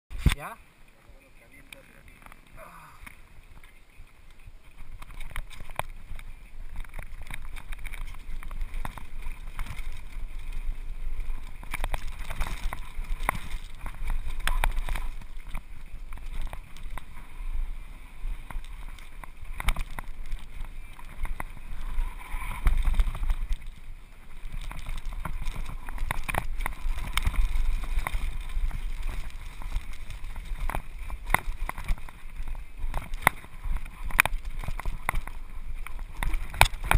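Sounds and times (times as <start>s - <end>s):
bike clicking and rattling: 0.1s - 36.9s
wind buffeting microphone: 1.7s - 36.9s.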